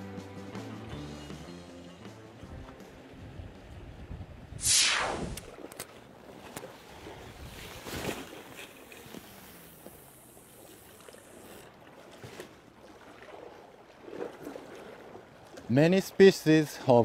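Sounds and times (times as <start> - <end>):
sea: 0.0 - 17.0
wind: 0.0 - 17.0
brief rush of noise: 4.6 - 5.5.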